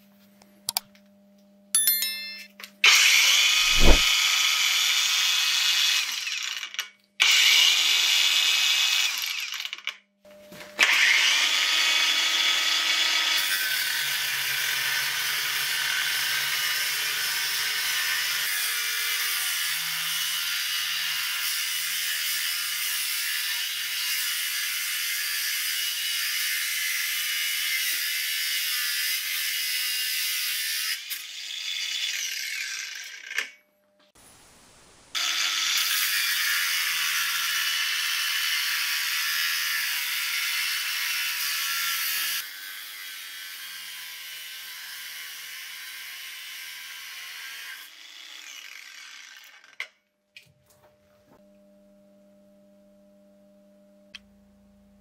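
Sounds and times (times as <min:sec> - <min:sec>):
angle grinder cutting steel tube: 0:10.8 - 0:33.5, 0:35.2 - 0:49.8.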